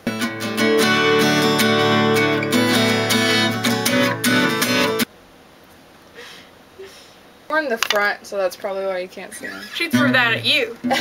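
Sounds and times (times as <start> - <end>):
acoustic guitar strumming chords: 0.0 - 5.1, 9.8 - 11.0.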